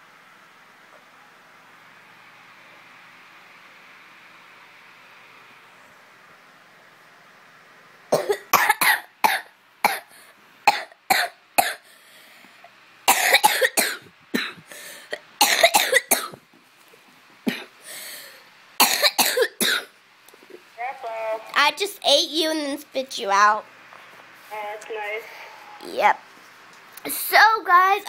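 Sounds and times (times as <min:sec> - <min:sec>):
girl making cough-like bursts: 0:08.2 - 0:10.1, 0:10.7 - 0:11.8, 0:13.1 - 0:16.4, 0:18.8 - 0:19.9.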